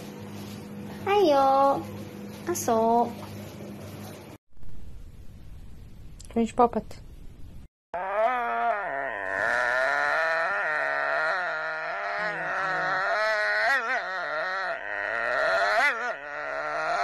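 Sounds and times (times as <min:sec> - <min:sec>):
dog howling: 0:08.0 - 0:17.0.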